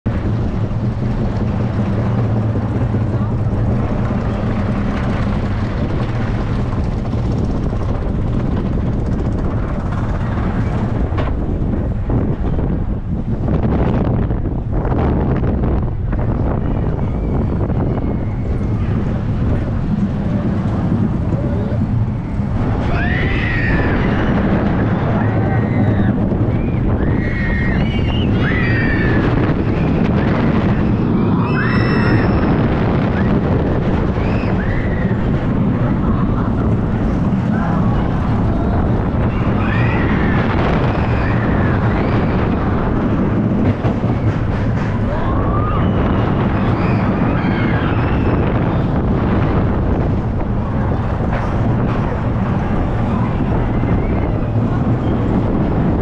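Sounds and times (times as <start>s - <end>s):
roller coaster car rumbling on track: 0.0s - 56.0s
wind buffeting microphone: 0.0s - 56.0s
high squeals: 21.4s - 35.5s, 37.4s - 43.2s, 43.9s - 49.0s.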